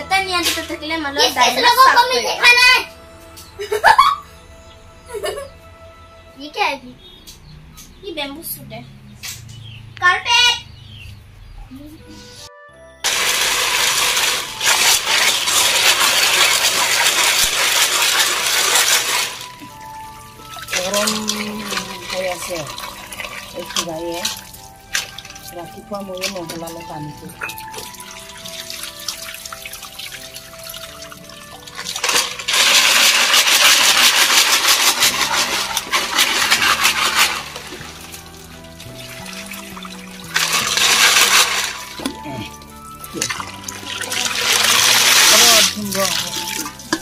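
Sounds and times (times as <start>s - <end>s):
snail shells clattering in metal pot: 13.0s - 19.8s, 20.4s - 47.0s
hand scrubbing shells: 13.0s - 47.0s
water sloshing: 13.0s - 47.0s.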